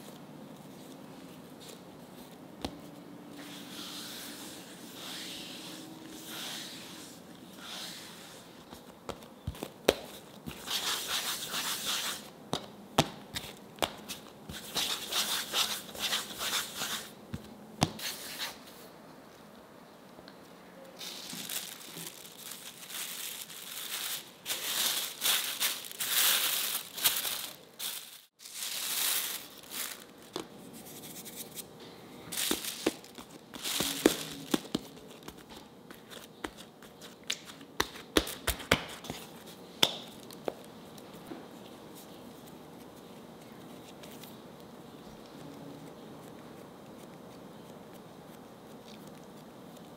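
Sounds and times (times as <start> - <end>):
plastic film crinkling: 21.0 - 30.5, 32.3 - 36.7.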